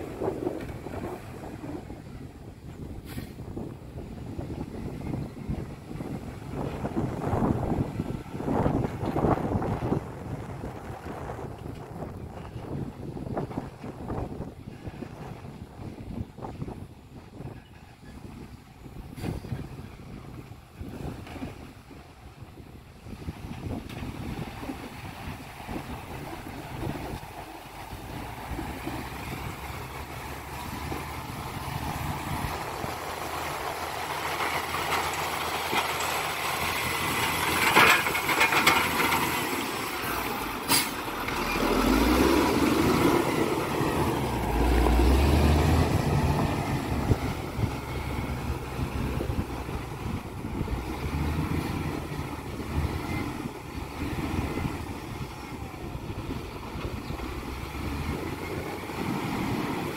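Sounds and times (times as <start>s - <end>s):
diesel engine driving past: 24.1s - 59.9s.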